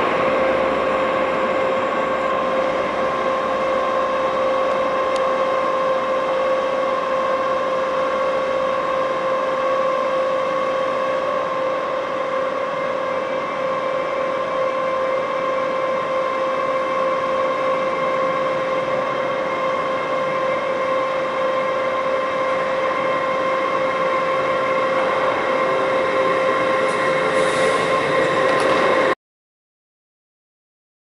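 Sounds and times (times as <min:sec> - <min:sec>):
diesel train engine whine: 0:00.0 - 0:29.2.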